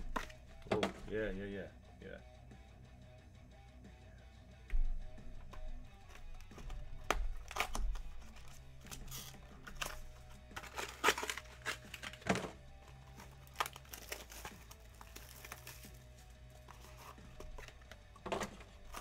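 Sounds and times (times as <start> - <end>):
quiet background music: 0.0 - 19.0
packaging crinkles clicks and taps: 5.5 - 15.9.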